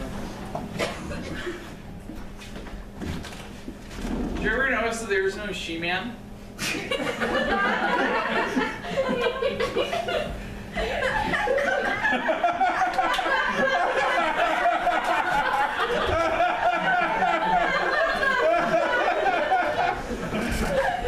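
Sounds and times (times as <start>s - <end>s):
audience laughing: 6.6s - 21.0s.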